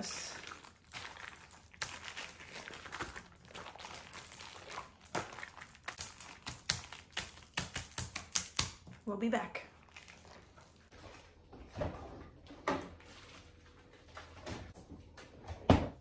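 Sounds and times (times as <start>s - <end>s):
plastic bag crackles: 0.0s - 7.6s
plastic bag crinkling: 0.0s - 8.0s.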